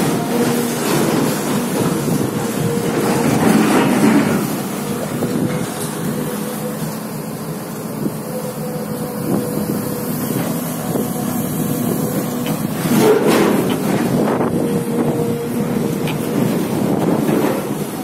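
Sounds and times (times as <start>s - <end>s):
excavator diesel engine running: 0.0s - 18.0s
wind on microphone: 9.2s - 18.0s.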